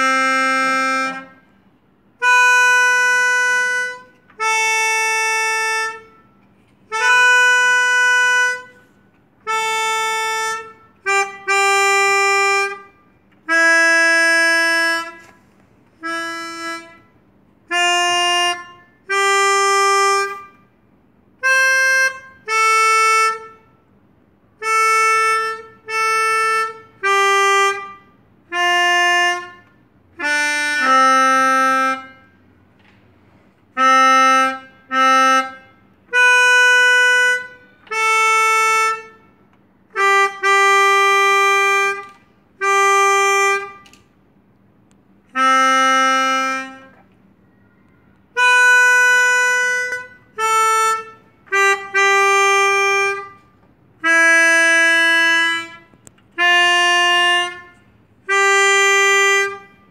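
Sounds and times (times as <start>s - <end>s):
melodica melody: 0.0s - 20.7s, 21.3s - 23.8s, 24.5s - 32.5s, 33.7s - 44.0s, 45.2s - 47.1s, 48.3s - 59.9s.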